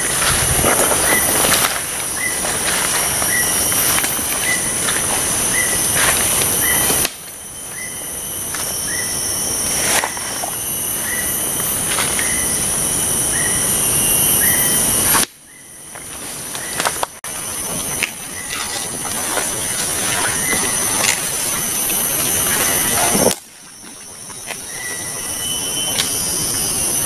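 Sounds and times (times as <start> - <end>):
footsteps through tall grass: 0.0 - 7.0, 16.0 - 25.3
high insect drone: 0.0 - 27.0.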